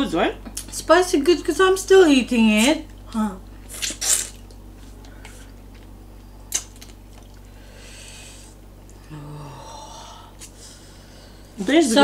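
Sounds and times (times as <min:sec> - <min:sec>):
closed-mouth hum while chewing: 0:00.4 - 0:00.9, 0:02.5 - 0:11.6
breath through nose: 0:07.5 - 0:08.6.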